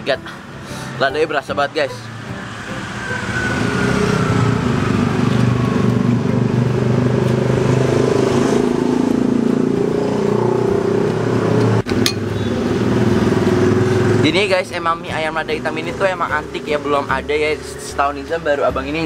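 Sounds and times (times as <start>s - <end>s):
vehicle engine running: 0.4s - 16.8s.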